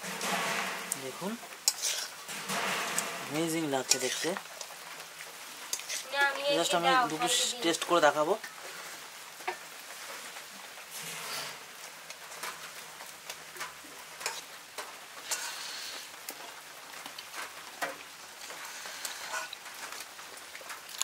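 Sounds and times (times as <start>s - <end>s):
metal spoon scraping wok: 0.0s - 4.5s, 5.7s - 6.2s, 10.9s - 11.7s, 14.2s - 14.5s, 15.2s - 15.9s, 19.2s - 19.6s
rain hissing: 0.0s - 20.9s.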